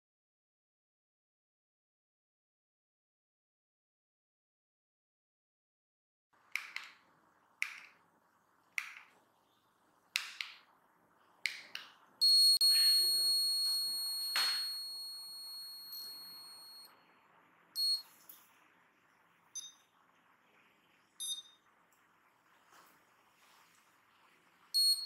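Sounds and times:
remote buttons clicking: 6.5s - 7.0s, 7.6s - 8.0s, 8.8s - 9.1s, 10.2s - 10.7s
short beep: 12.2s - 16.9s.

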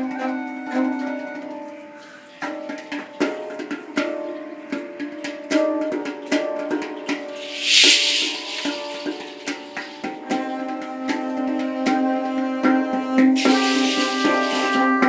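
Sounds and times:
bowed violin note: 13.4s - 15.0s.

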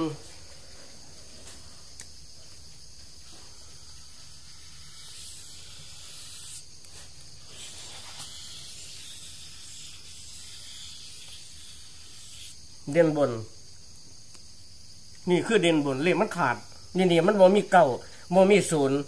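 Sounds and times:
steady high hiss: 0.0s - 19.0s
marker scratching on paper: 3.7s - 12.6s.

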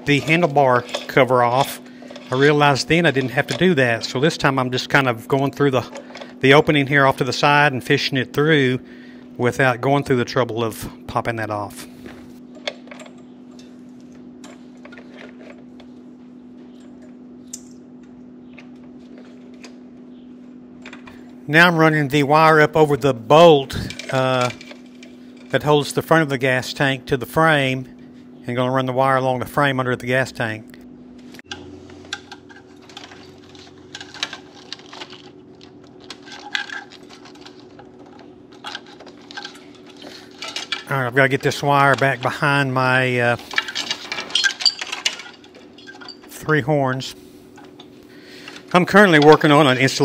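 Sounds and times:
steady low hum: 0.0s - 50.0s
wire clicking and rattling: 31.4s - 46.4s.

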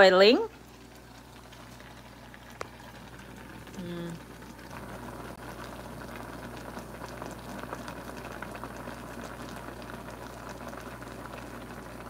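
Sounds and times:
pot of water boiling: 0.0s - 12.0s.

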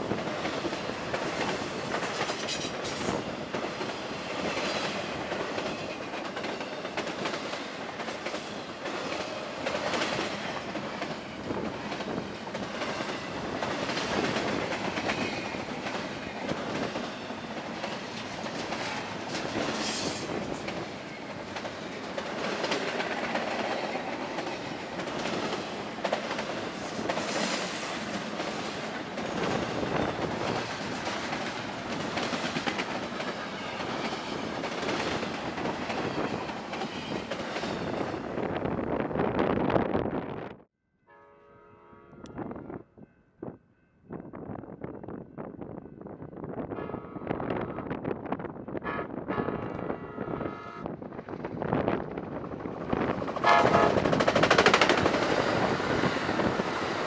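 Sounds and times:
train wheels clattering on rails: 0.0s - 38.2s, 51.4s - 57.0s.

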